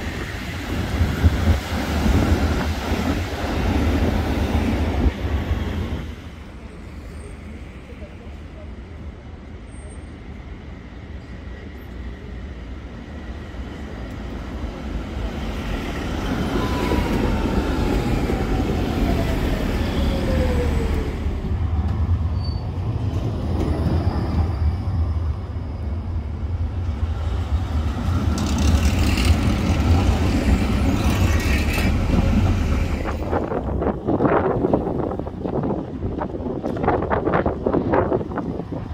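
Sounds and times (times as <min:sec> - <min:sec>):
tram wheels rumbling on rails: 0:00.0 - 0:38.9
tram rattling clatter: 0:20.6 - 0:38.9.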